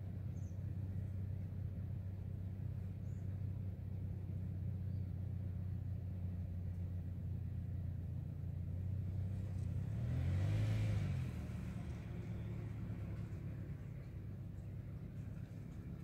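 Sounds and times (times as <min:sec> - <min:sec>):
car passing by: 0:08.9 - 0:16.0
steady low rumble: 0:11.3 - 0:16.0.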